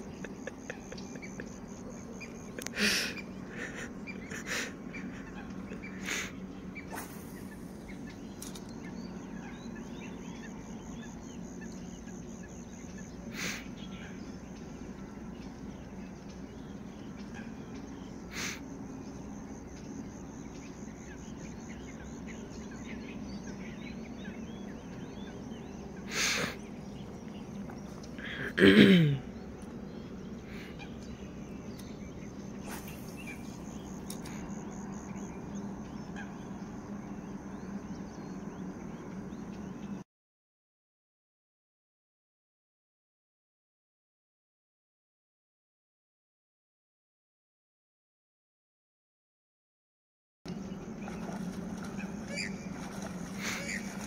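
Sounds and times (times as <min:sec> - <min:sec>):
faint chirps: 0:00.0 - 0:40.0
steady low hum: 0:00.0 - 0:40.0, 0:50.5 - 0:54.0.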